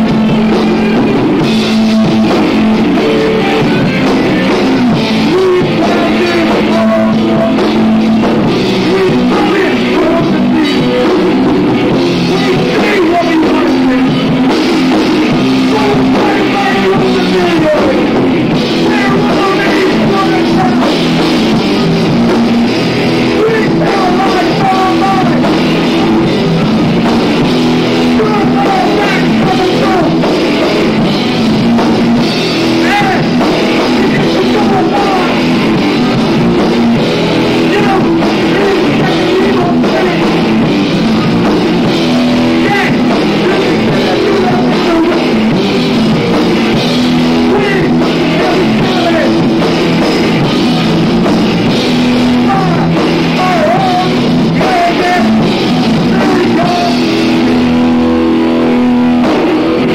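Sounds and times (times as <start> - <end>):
rock band playing: 0.0 - 59.9
person singing into microphone: 3.0 - 8.0, 8.8 - 21.2, 23.3 - 26.3, 27.9 - 30.9, 32.7 - 35.8, 37.5 - 40.6, 42.5 - 45.6, 47.4 - 50.6, 52.2 - 57.8.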